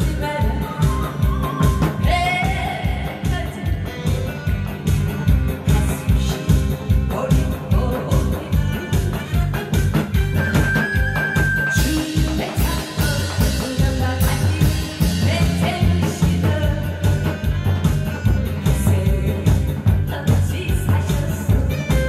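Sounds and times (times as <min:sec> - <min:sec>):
woman singing into microphone: 0:00.0 - 0:04.6, 0:05.5 - 0:09.6, 0:10.3 - 0:22.0
amplified backing track with drums: 0:00.0 - 0:22.0.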